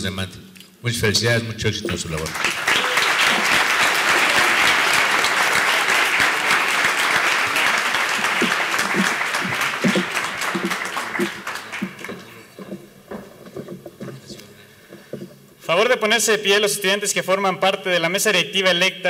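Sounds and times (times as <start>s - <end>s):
audience applauding: 1.9s - 13.2s.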